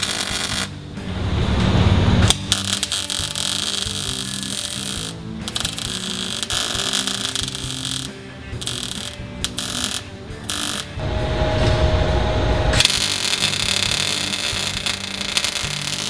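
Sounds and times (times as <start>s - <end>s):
welder arc crackling: 0.0s - 16.0s
steady hum: 0.9s - 2.6s, 11.0s - 12.9s.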